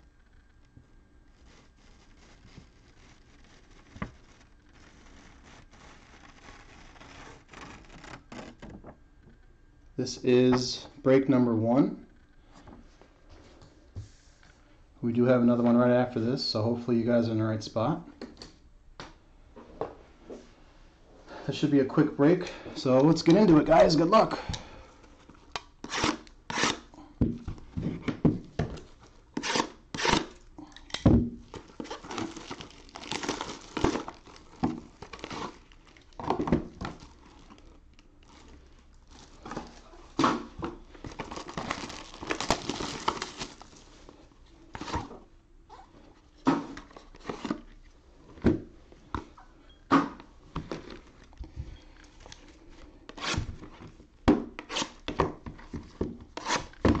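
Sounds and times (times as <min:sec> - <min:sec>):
plastic shrink wrap crinkling and tearing: 0:01.2 - 0:08.9, 0:28.8 - 0:45.1.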